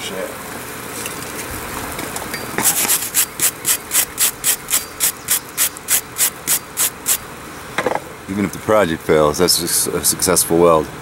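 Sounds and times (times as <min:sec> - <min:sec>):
wire brush rasping on steel: 0:02.6 - 0:07.2.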